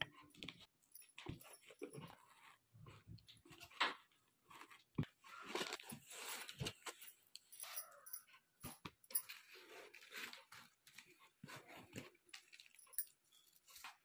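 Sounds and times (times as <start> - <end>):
cardboard and foam rustling: 1.3 - 7.3, 9.2 - 12.8.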